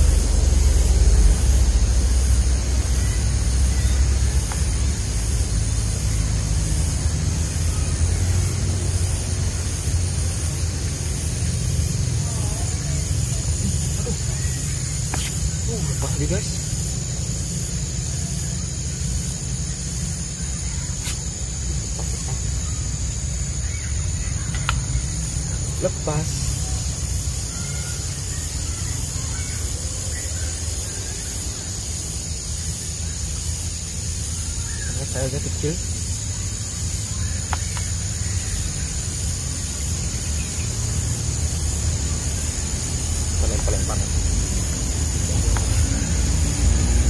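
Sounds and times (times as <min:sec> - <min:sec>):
low steady rumble: 0:00.0 - 0:25.8
high-pitched insect drone: 0:00.0 - 0:47.0.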